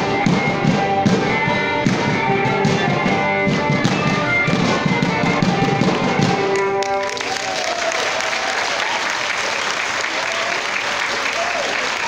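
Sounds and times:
live folk dance music: 0.0 - 8.2
audience applause: 6.4 - 12.0.

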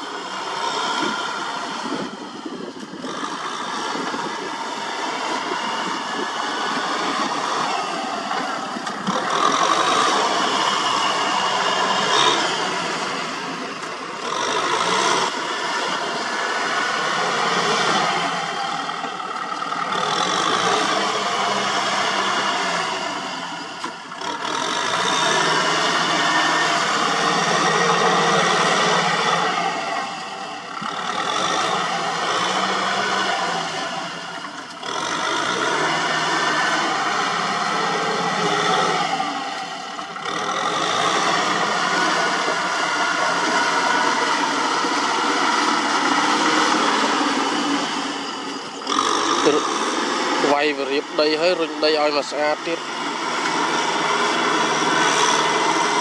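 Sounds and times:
tractor diesel engine under load: 0.0 - 56.0.

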